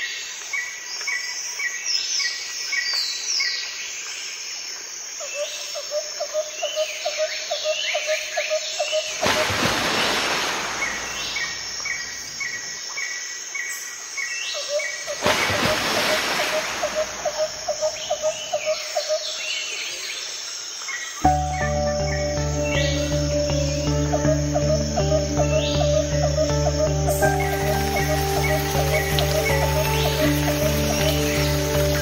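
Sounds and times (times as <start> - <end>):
insect trill: 4.4 - 19.6, 20.4 - 32.0
birds chirping and calling: 16.6 - 19.6, 21.2 - 32.0.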